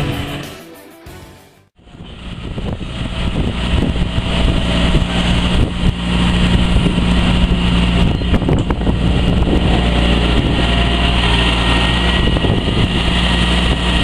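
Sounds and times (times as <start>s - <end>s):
music: 0.0s - 1.8s
tractor diesel engines running: 1.8s - 14.0s.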